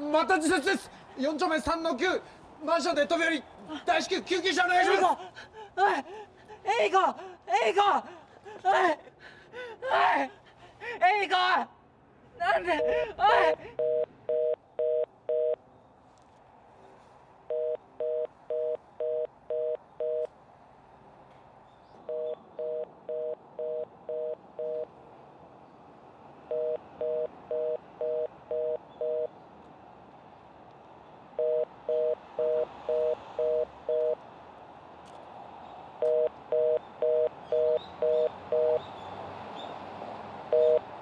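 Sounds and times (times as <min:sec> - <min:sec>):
short electronic telephone beeps: 0:31.4 - 0:34.2, 0:36.0 - 0:38.8, 0:40.5 - 0:40.8.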